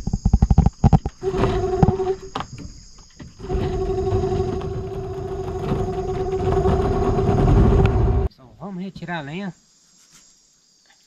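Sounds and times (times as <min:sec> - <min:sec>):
small engine running: 0:03.4 - 0:08.3.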